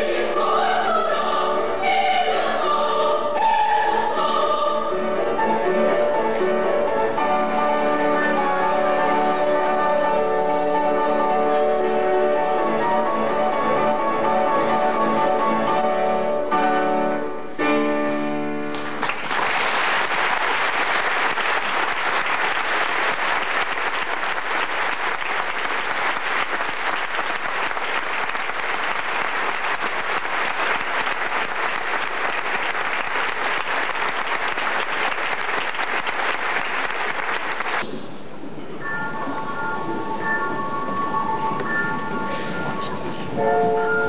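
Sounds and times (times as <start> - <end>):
audience applauding: 18.7 - 37.9.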